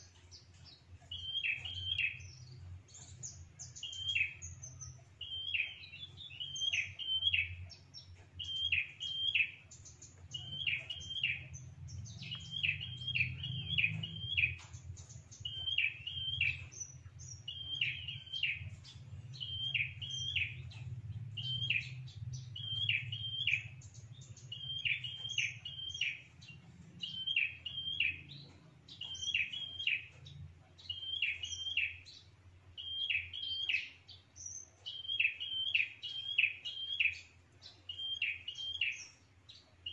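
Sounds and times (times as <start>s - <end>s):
small bird chirping call: 0.0s - 39.9s
faint low rumble: 9.8s - 27.2s.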